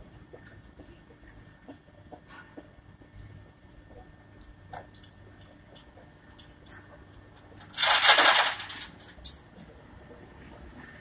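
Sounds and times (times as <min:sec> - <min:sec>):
loud rustling burst: 0:07.7 - 0:09.0.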